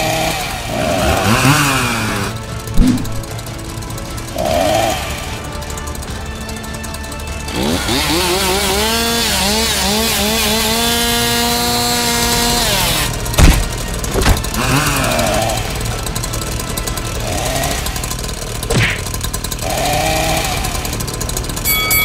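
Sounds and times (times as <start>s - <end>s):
chainsaw revving: 0.0s - 22.0s
loud sharp knocks: 13.4s - 14.6s, 18.7s - 19.1s.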